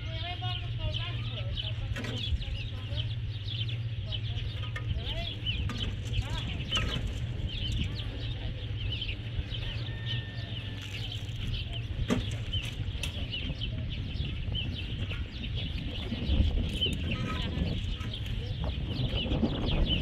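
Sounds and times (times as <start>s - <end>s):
birds chirping: 0.0s - 20.0s
low steady rumble: 0.0s - 20.0s.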